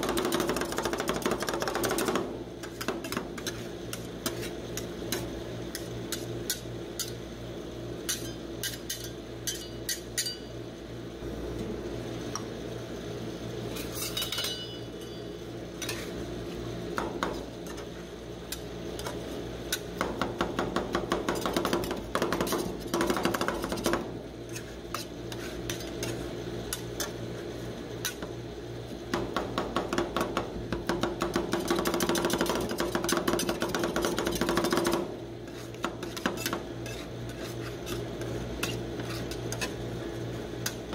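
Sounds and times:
metal spatulas chopping on cold plate: 0:00.0 - 0:07.2, 0:08.1 - 0:10.5
steady low hum: 0:00.0 - 0:40.9.

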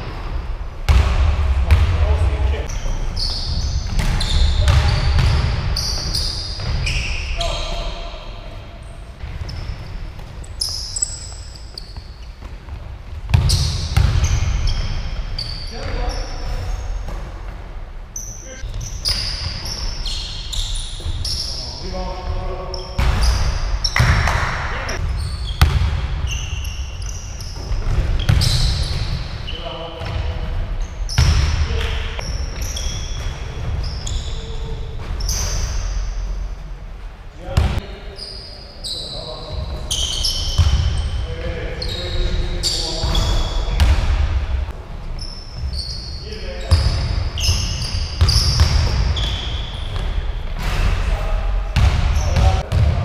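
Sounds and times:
sneakers squeaking: 0:00.0 - 0:53.0
basketball bouncing: 0:00.9 - 0:02.2, 0:03.4 - 0:07.0, 0:09.2 - 0:16.0, 0:23.0 - 0:26.4, 0:27.6 - 0:29.4, 0:31.1 - 0:33.9, 0:39.7 - 0:41.2, 0:46.7 - 0:50.8, 0:51.8 - 0:53.0
players' voices: 0:01.1 - 0:11.4, 0:15.6 - 0:17.7, 0:20.6 - 0:25.1, 0:37.2 - 0:44.8, 0:46.1 - 0:53.0.

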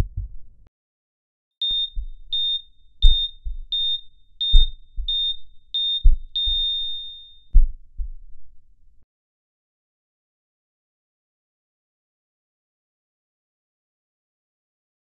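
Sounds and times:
heartbeat thumps: 0:00.0 - 0:00.7, 0:01.6 - 0:09.0
heart monitor beeps: 0:01.6 - 0:08.2.

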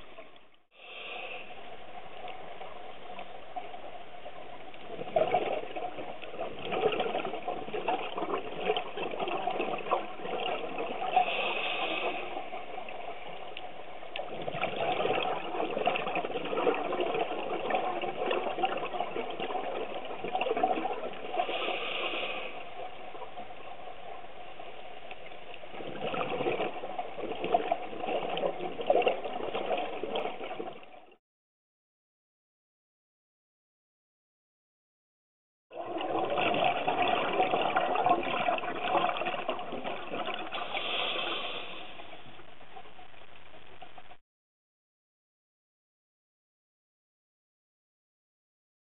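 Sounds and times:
underwater exhaled bubbles gurgling: 0:01.0 - 0:31.2, 0:35.7 - 0:44.2
regulator inhalation hiss: 0:11.2 - 0:12.3, 0:21.5 - 0:22.6, 0:40.6 - 0:42.1.

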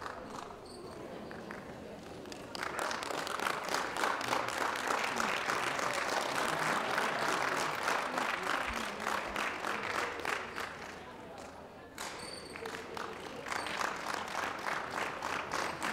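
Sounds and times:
audience applauding: 0:02.3 - 0:11.1, 0:12.0 - 0:15.9.

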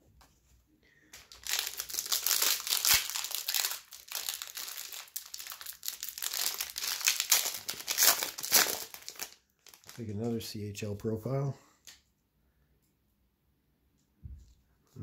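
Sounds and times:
foil wrapper crinkling: 0:01.2 - 0:10.2.

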